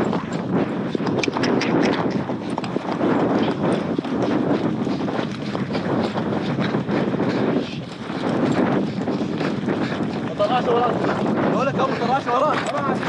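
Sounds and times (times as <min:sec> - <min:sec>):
hoofbeats on sand: 0:00.0 - 0:13.0
steady rushing noise: 0:00.0 - 0:13.0.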